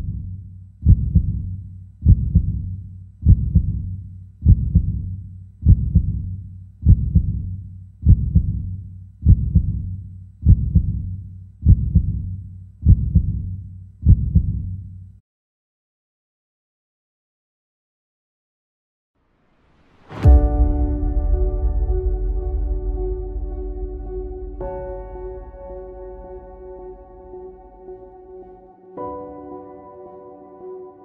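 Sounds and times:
heartbeat thumps: 0:00.0 - 0:14.8.

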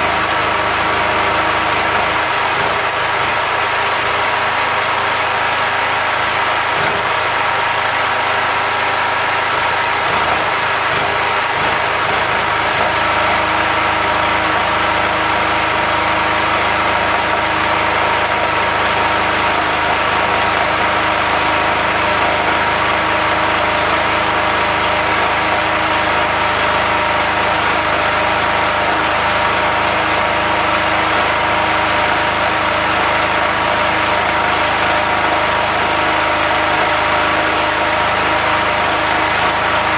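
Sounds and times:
generator engine running: 0:00.0 - 0:39.9
welding arc crackling: 0:00.0 - 0:39.9.

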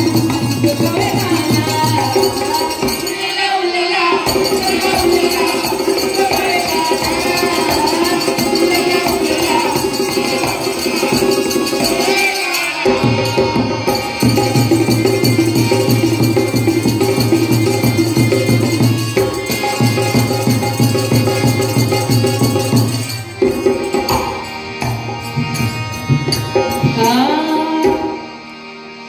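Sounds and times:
hand drum: 0:00.0 - 0:03.3, 0:04.2 - 0:28.2
jingling hand percussion: 0:00.0 - 0:28.6
harmonium: 0:00.0 - 0:29.0
woman singing folk song: 0:26.9 - 0:28.2.

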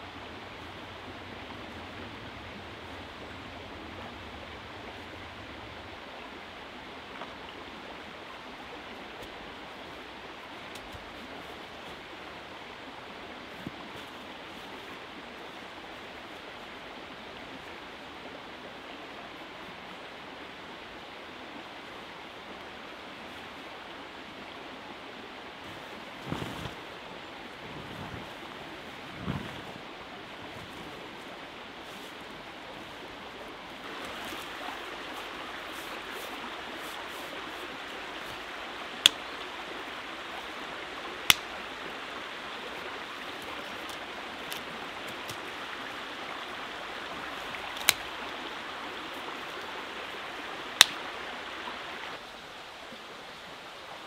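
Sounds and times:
river flowing: 0:00.0 - 0:54.0
sticks cracking: 0:39.0 - 0:39.3, 0:41.2 - 0:41.6, 0:47.6 - 0:48.2, 0:50.8 - 0:51.1.

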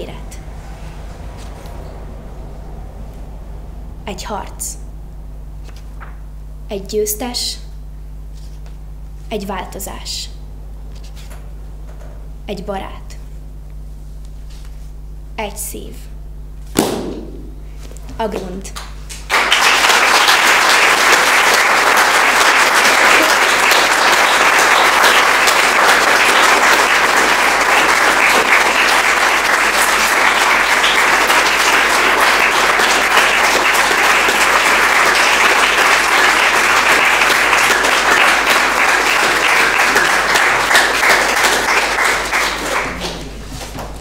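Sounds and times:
audience applauding: 0:18.8 - 0:44.0.

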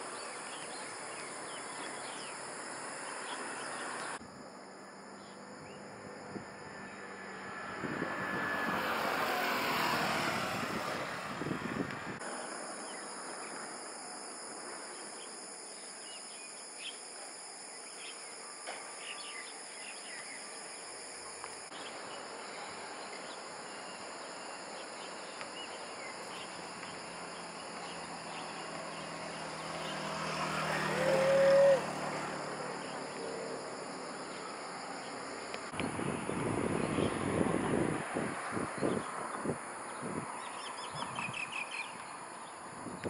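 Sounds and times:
high-pitched insect drone: 0:00.0 - 0:41.9
faint insect chirps: 0:00.0 - 0:43.0
passing vehicle hum: 0:04.8 - 0:13.0, 0:25.9 - 0:40.8.

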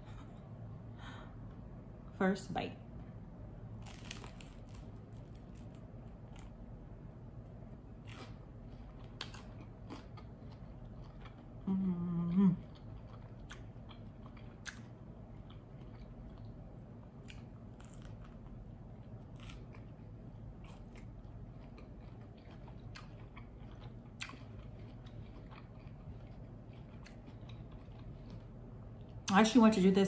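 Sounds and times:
toast crunching: 0:03.8 - 0:06.6, 0:07.9 - 0:11.5, 0:17.2 - 0:28.5
person chewing: 0:03.8 - 0:06.7, 0:07.8 - 0:29.1.

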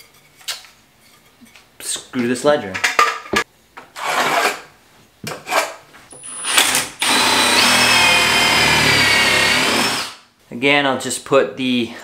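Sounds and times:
cordless drill driving screw: 0:06.2 - 0:10.2.

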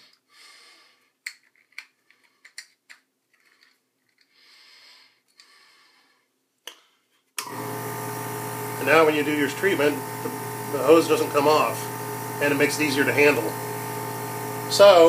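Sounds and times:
plastic parts clicking: 0:01.2 - 0:04.3
air compressor humming: 0:07.4 - 0:15.0.

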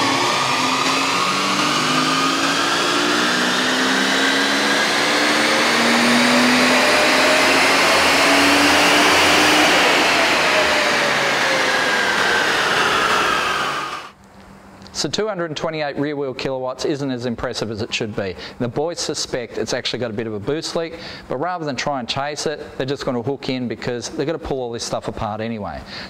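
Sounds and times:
engine revving at full throttle: 0:00.0 - 0:14.2.

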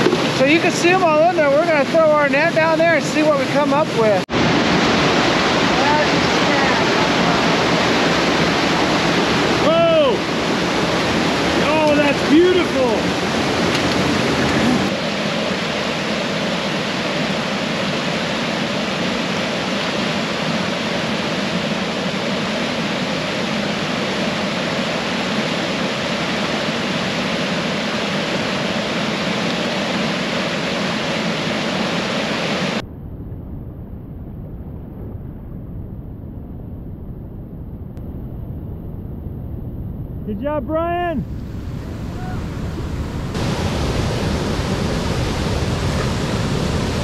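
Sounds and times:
creek whitewater rushing: 0:00.0 - 0:32.8, 0:40.4 - 0:47.0
low rumble: 0:32.8 - 0:47.0.

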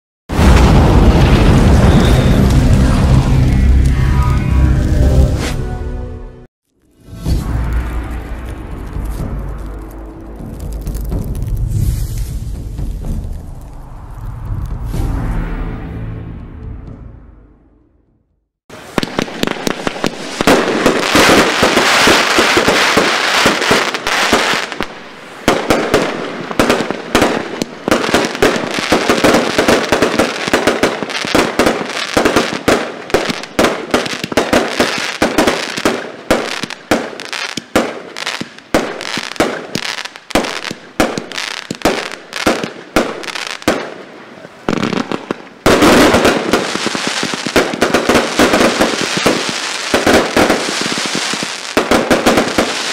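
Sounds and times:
firework battery barrage: 0:00.3 - 0:04.5, 0:18.7 - 0:43.9, 0:44.7 - 0:52.9
crackling star bursts: 0:00.3 - 0:05.5, 0:38.4 - 0:52.9.

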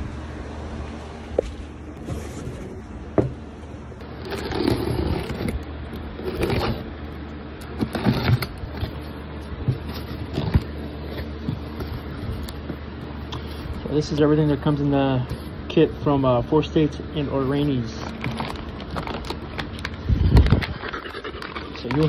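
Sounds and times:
cardboard flaps scraping: 0:01.4 - 0:03.4, 0:04.1 - 0:06.9, 0:07.8 - 0:12.8.

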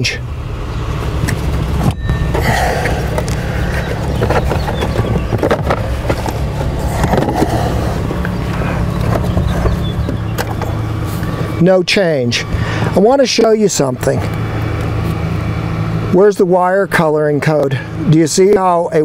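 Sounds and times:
steady low rumble: 0:00.0 - 0:18.1.

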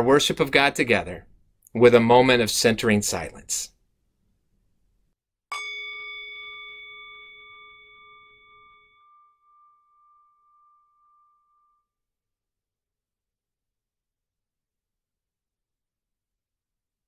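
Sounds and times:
bell ringing: 0:05.5 - 0:11.8.

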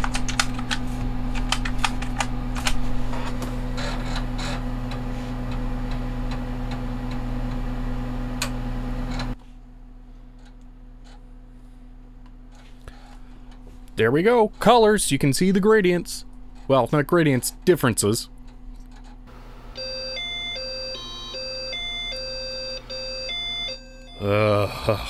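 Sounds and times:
floppy drive motor humming: 0:00.3 - 0:09.4, 0:19.3 - 0:24.5
floppy drive clicking: 0:08.3 - 0:09.4.

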